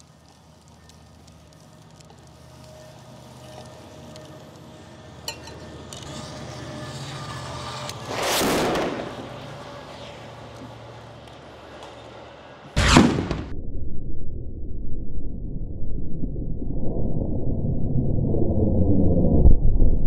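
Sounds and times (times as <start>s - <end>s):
outdoor handling noise: 5.2s - 6.2s.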